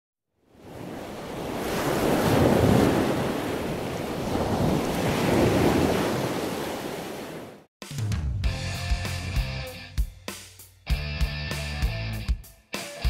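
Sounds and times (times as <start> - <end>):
ocean waves washing: 0.5 - 7.7.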